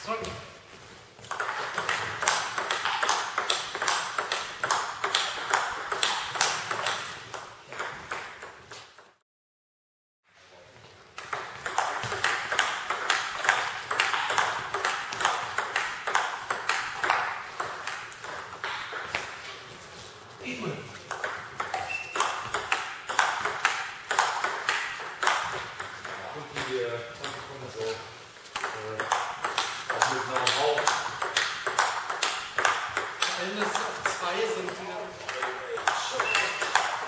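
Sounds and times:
table tennis ball clicks: 0:28.6 - 0:37.0.

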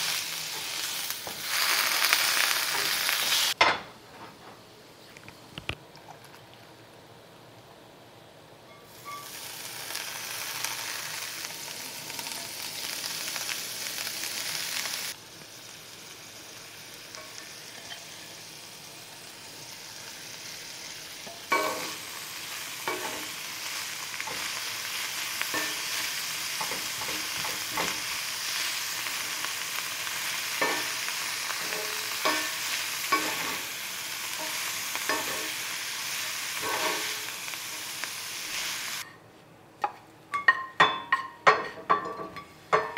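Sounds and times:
cabbage sizzling in a skillet: 0:00.0 - 0:03.6, 0:08.9 - 0:39.1.

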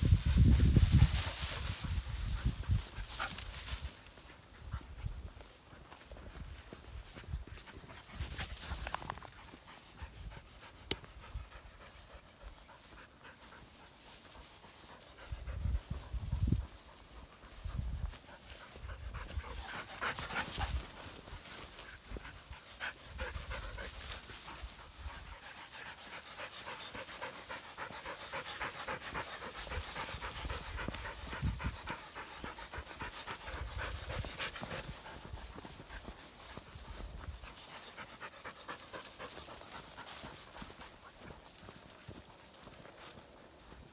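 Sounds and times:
dog panting hard: 0:07.2 - 0:41.7.

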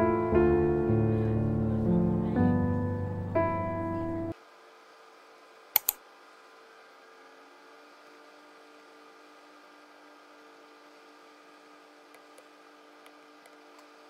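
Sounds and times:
piano music: 0:00.0 - 0:04.4.

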